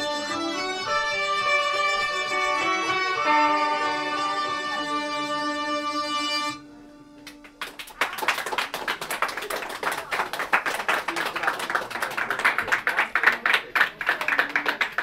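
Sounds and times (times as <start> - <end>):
audience clapping: 7.2 - 15.0.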